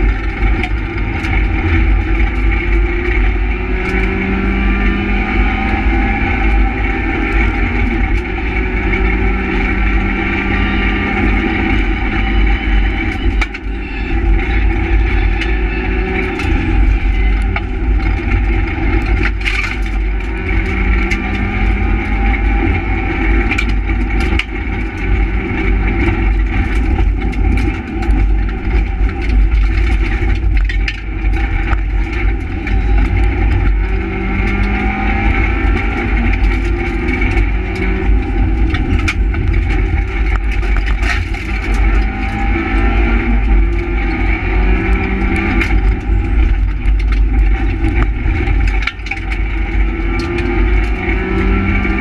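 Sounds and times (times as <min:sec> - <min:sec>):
car engine revving: 0:00.0 - 0:52.0
road and wind rumble: 0:00.0 - 0:52.0.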